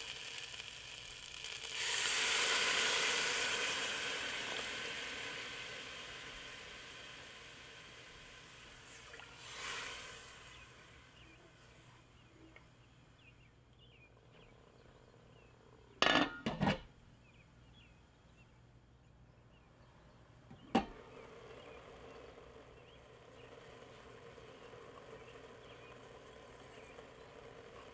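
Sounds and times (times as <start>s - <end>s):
glass lid clinking on pot: 16.0s - 16.8s.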